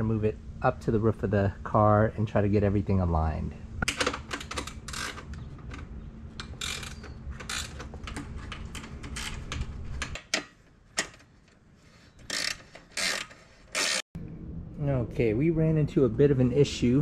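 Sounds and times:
ratchet wrench clicking: 0:06.4 - 0:07.8, 0:12.3 - 0:14.0.

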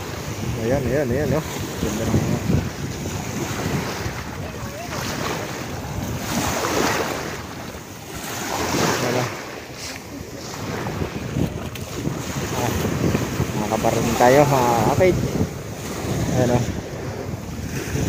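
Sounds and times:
sea waves washing in: 0:00.0 - 0:18.0
wind buffeting microphone: 0:00.0 - 0:18.0.

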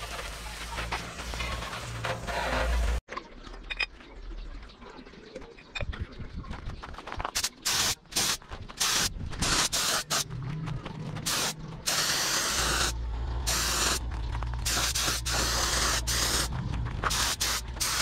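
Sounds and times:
garden hose spraying water: 0:07.4 - 0:10.2, 0:11.3 - 0:14.0, 0:14.6 - 0:16.5, 0:17.1 - 0:18.0
paint spray gun hissing: 0:11.3 - 0:14.0, 0:14.6 - 0:16.5, 0:17.1 - 0:18.0.

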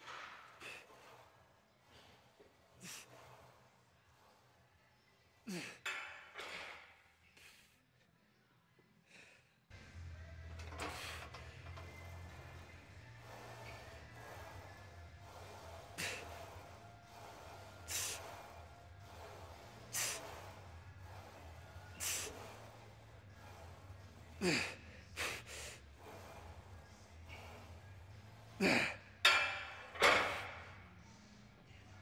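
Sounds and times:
sharp forceful breaths: 0:10.8 - 0:28.9.

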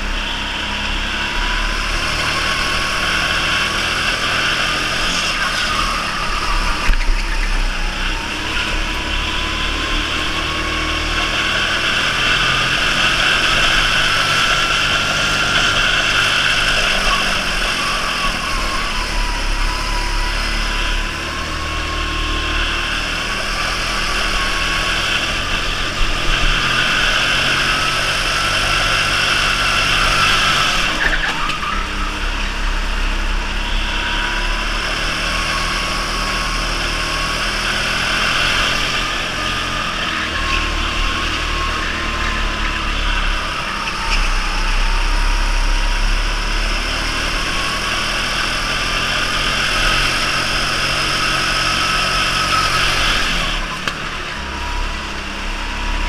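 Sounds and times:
electric motor whine: 0:00.0 - 0:56.0.

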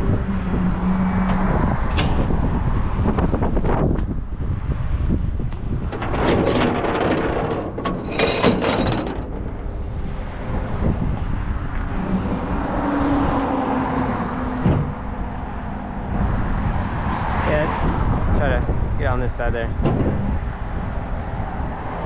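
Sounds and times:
passing traffic: 0:00.0 - 0:22.0
chains clinking on steel deck: 0:06.4 - 0:09.4.

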